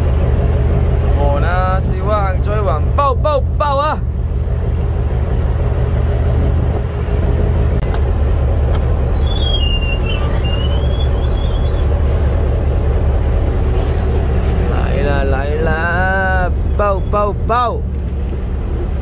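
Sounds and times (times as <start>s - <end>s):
boat engine droning: 0.0s - 19.0s
high squeak: 9.0s - 11.8s, 13.4s - 14.2s.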